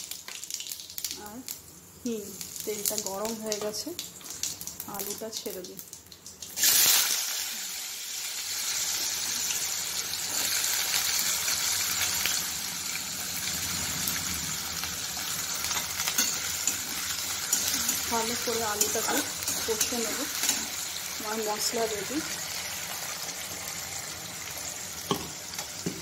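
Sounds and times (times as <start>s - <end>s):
potatoes sizzling in hot oil: 0.0s - 26.0s
metal spatula stirring: 15.7s - 20.8s.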